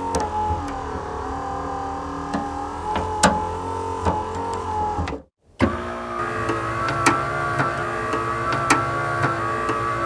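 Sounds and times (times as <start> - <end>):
vehicle engine droning: 0.0 - 10.0
sharp clicks and knocks: 6.4 - 10.0.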